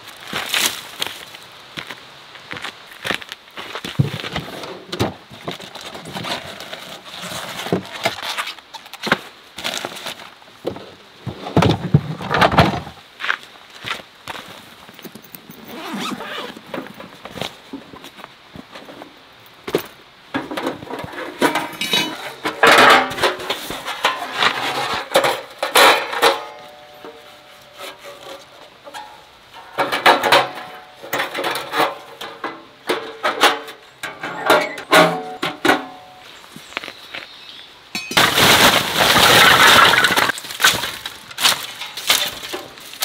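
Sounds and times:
metal panels clanking: 20.4s - 26.9s, 27.9s - 36.2s.

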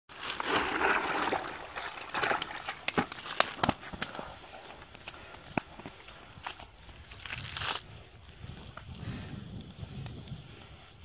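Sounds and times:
twigs snapping: 2.2s - 4.3s, 4.9s - 7.8s.

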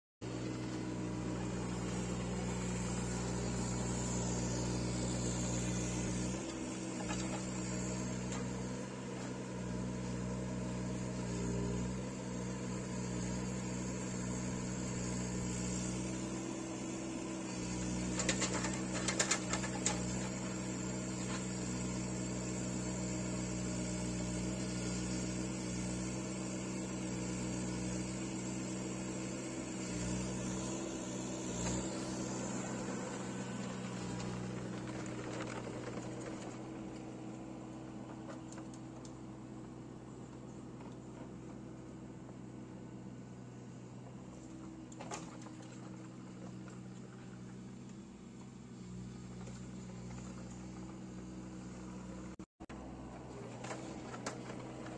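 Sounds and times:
excavator diesel engine running: 0.2s - 54.9s.

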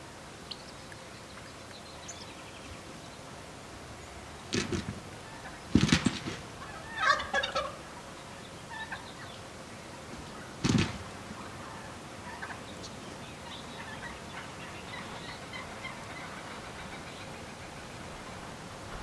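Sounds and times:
wild turkeys gobbling: 5.2s - 10.5s, 11.1s - 18.3s.

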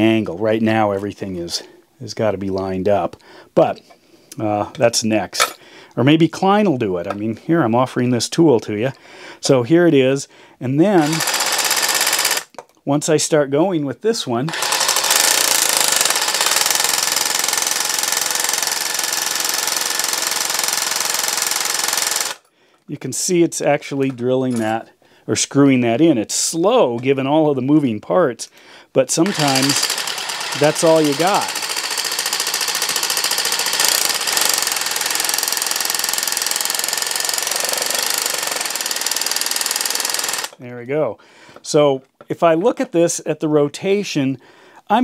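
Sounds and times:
reciprocating saw buzzing: 11.0s - 12.5s, 14.5s - 22.4s, 29.2s - 40.6s.

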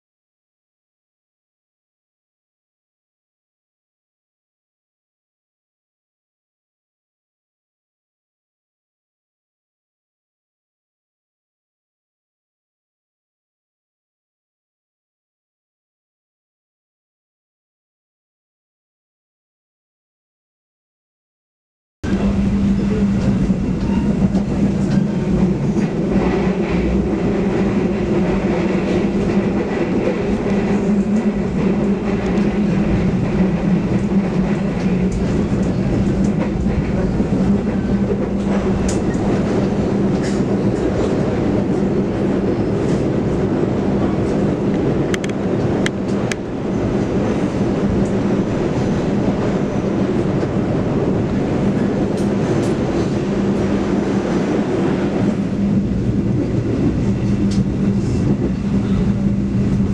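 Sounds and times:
train wheels rumbling on rail: 22.0s - 59.9s.

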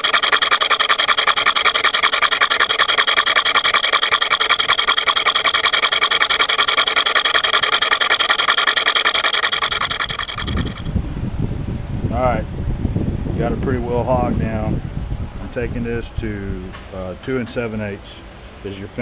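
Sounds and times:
metal lathe cutting: 0.0s - 10.9s.

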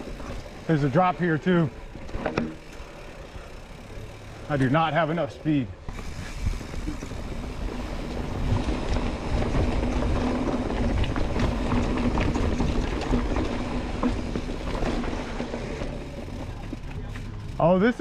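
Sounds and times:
steady rushing noise: 3.1s - 18.0s
bike tyres rumbling over rock: 5.8s - 18.0s
sharp knocks and rattles: 8.4s - 17.4s.

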